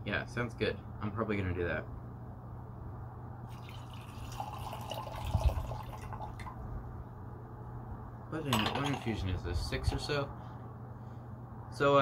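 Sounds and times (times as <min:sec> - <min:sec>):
liquid pouring into teaware: 0:03.5 - 0:06.6.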